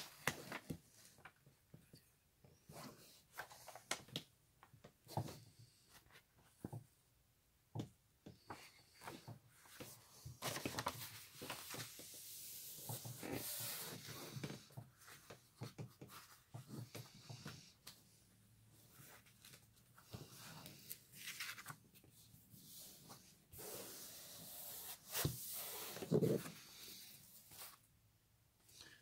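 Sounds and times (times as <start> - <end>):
plastic sheet rustling and crinkling: 9.8 - 12.2.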